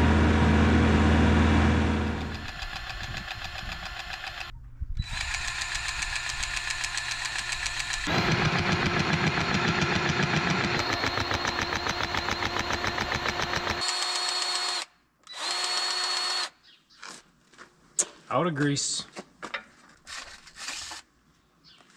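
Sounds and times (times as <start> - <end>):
cordless grease gun pumping: 2.2 - 16.5.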